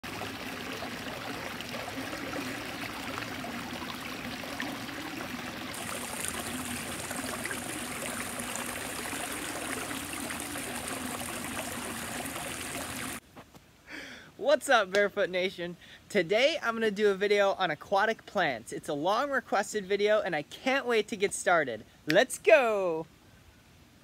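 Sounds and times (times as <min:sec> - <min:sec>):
small waterfall splashing into pond: 0:00.0 - 0:13.2.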